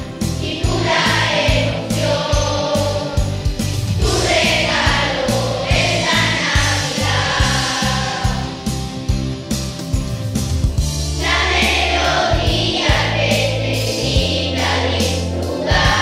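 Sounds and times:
accompaniment with beat and bass: 0.0s - 16.0s
children's choir singing: 0.4s - 3.4s, 4.0s - 8.6s, 11.2s - 16.0s.

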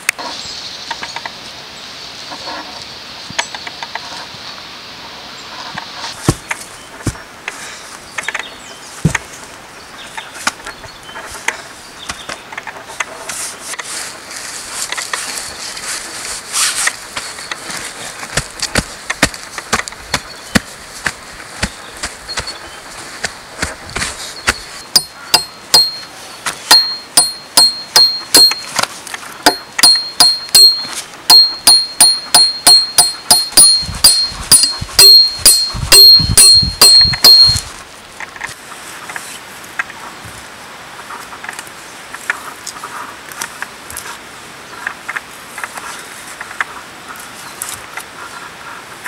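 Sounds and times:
faint rustling: 5.5s - 25.4s
hammer striking nail: 26.7s - 28.7s, 29.5s - 37.6s.

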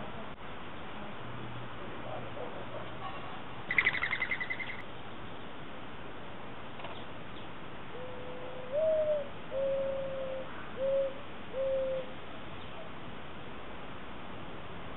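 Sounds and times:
dove cooing: 7.9s - 12.2s.

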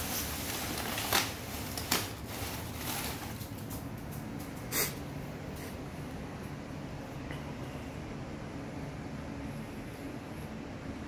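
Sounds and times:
sharp paper crackles: 0.0s - 3.9s
packing paper rustling and crinkling: 0.0s - 4.2s.

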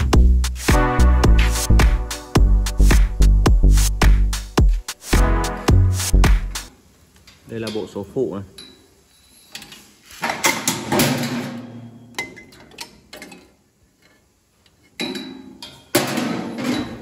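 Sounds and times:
metal clicks and clanks: 12.2s - 17.0s.

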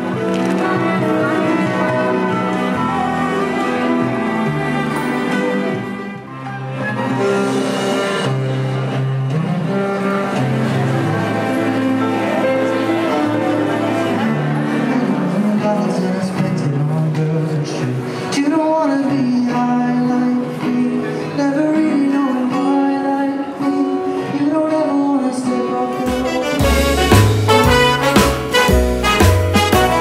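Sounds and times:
slow song with plucked guitar: 0.0s - 30.0s
brighter music piece: 25.9s - 30.0s.

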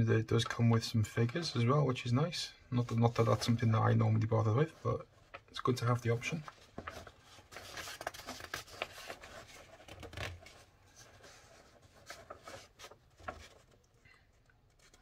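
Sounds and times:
paper pages turning: 2.8s - 14.0s, 14.6s - 15.0s.

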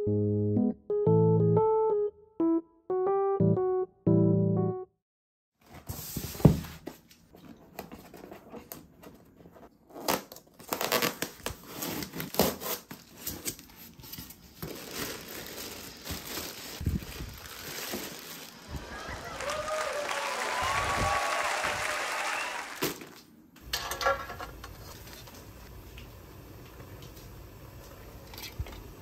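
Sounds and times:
crinkling and rustling: 5.6s - 18.7s, 22.8s - 28.9s.

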